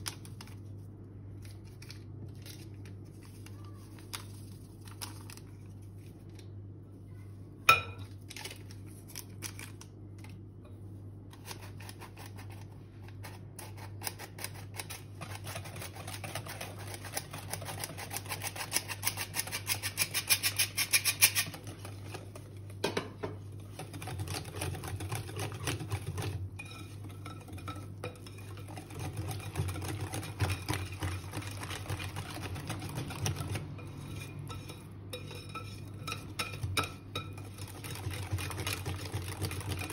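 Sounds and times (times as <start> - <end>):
wire whisk stirring batter: 11.3 - 39.9.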